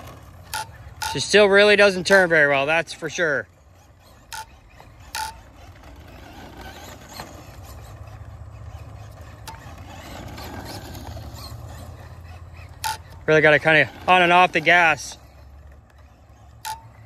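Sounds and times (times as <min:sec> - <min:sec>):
rc car motor: 0:00.0 - 0:17.0.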